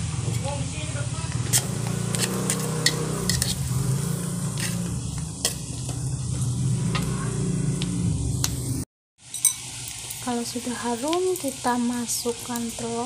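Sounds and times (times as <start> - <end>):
garlic and onion sizzling in oil: 0.0 - 13.0
spatula scraping a wok: 1.4 - 7.4.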